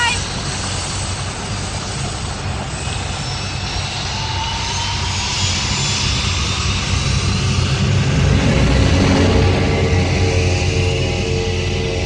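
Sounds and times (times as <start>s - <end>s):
hovercraft engine and propeller drone: 0.0s - 12.0s.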